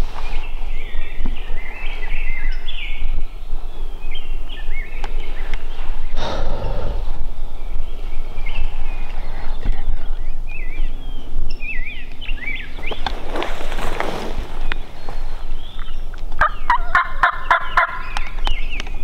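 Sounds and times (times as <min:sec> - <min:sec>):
songbirds chirping: 0:00.0 - 0:19.0
low rumble: 0:02.7 - 0:16.7
rush of noise: 0:05.5 - 0:10.2.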